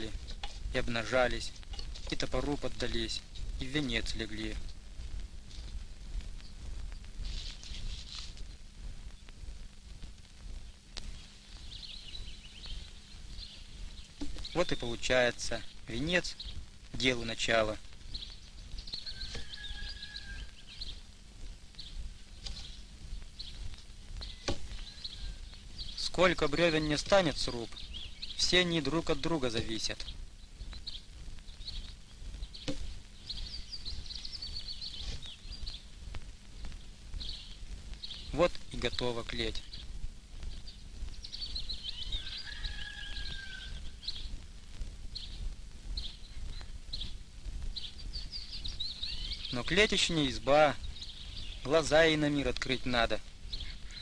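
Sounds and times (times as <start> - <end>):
birds chirping: 0.0 - 54.0
low rumble: 39.5 - 49.5.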